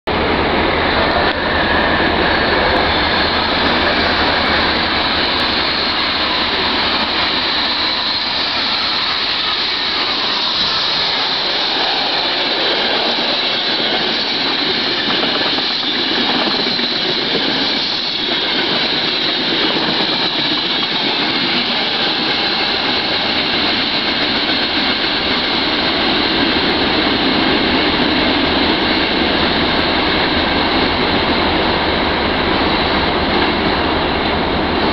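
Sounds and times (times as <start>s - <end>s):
train passing: 0.1s - 34.9s.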